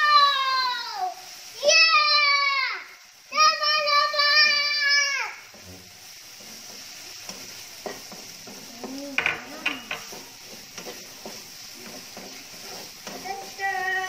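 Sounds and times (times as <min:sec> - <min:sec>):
food sizzling in a frying pan: 0:00.0 - 0:14.0
spatula scraping a pan: 0:05.5 - 0:14.0
spatula clacking against pan: 0:06.3 - 0:13.7.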